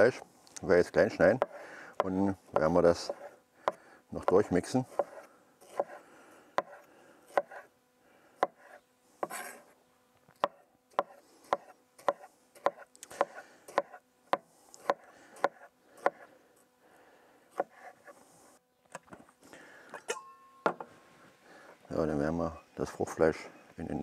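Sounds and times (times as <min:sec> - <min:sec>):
knife chopping on wooden board: 0:01.4 - 0:06.0, 0:06.6 - 0:07.7, 0:08.4 - 0:09.6, 0:10.4 - 0:16.3, 0:17.5 - 0:18.0.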